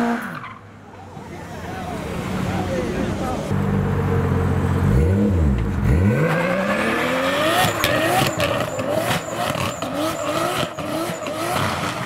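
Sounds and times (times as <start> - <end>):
car engine revving hard: 4.8 - 12.0.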